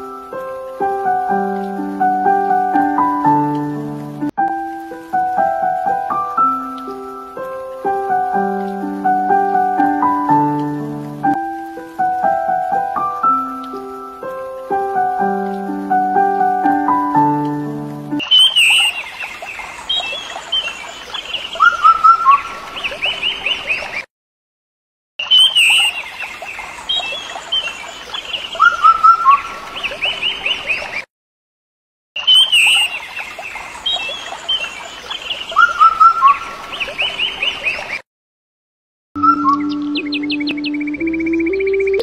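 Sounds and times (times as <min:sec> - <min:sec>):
birds chirping: 0:16.6 - 0:24.1, 0:25.2 - 0:31.1, 0:32.2 - 0:38.0, 0:39.2 - 0:42.0.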